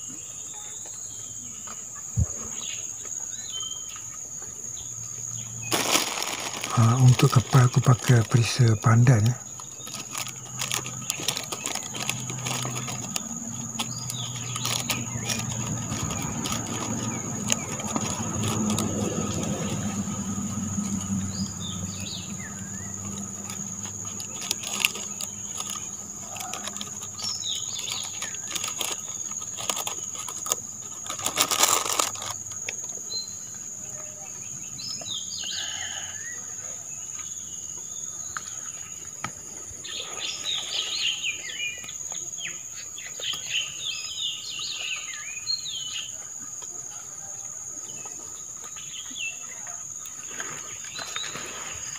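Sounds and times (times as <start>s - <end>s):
birds chirping: 0.0s - 46.6s
insects droning: 0.0s - 51.9s
plastic bags crinkling: 5.6s - 19.9s, 21.6s - 32.7s
low hum: 10.7s - 26.3s.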